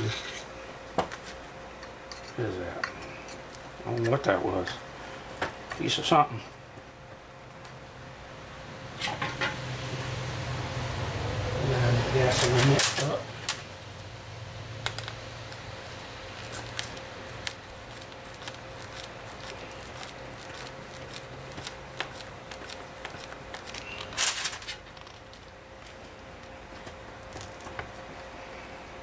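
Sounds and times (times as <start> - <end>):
faint steady hum: 0.0 - 29.0
scraping rustle: 16.3 - 26.1.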